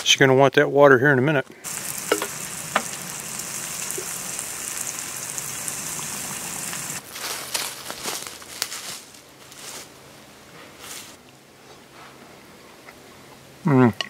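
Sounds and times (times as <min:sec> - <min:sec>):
water pouring into bowl: 0:01.7 - 0:07.0.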